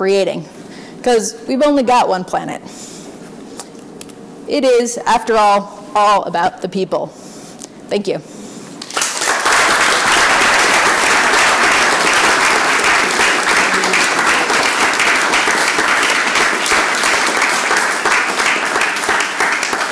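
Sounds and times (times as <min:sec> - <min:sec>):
audience applauding: 0:08.8 - 0:19.9.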